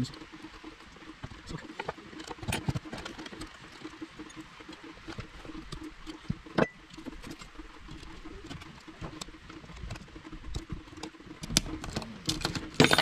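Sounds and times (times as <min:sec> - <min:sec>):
metal clicks and scrapes: 0:01.5 - 0:13.0.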